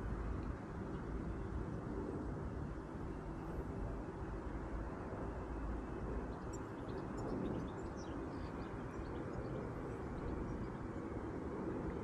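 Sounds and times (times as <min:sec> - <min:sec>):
low outdoor rumble: 0:00.0 - 0:06.4.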